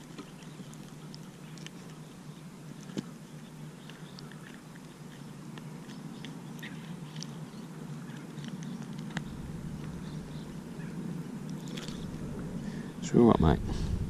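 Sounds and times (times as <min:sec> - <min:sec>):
steady low hum: 0:00.0 - 0:14.0
fingers clicking and rustling: 0:02.8 - 0:10.0.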